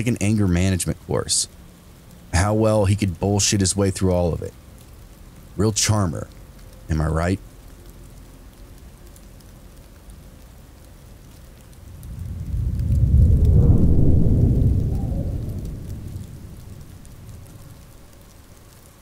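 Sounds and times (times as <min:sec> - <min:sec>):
steady rain: 0:00.0 - 0:19.0
thunder rumbling: 0:11.5 - 0:19.0.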